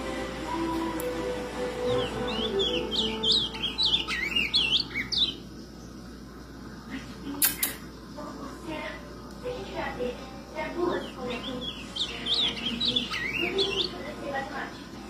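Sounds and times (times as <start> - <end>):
bird warbling: 1.5 - 6.0, 10.8 - 14.4.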